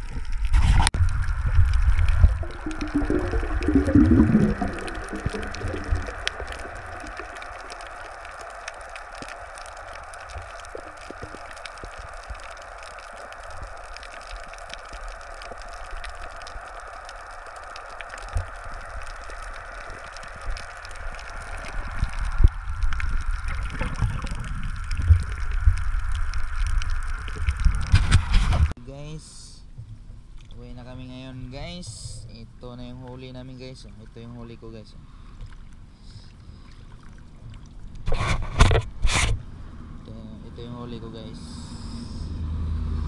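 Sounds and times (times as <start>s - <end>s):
faint underwater clicks: 0.0s - 28.7s, 30.4s - 39.0s
water rushing past camera: 0.0s - 28.7s
underwater watery hiss: 0.4s - 28.7s, 41.4s - 42.4s.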